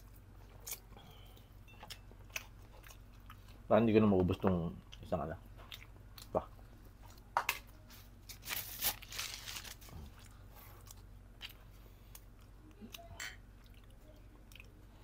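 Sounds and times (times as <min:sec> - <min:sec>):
light chewing: 0:00.0 - 0:07.3, 0:09.9 - 0:15.0.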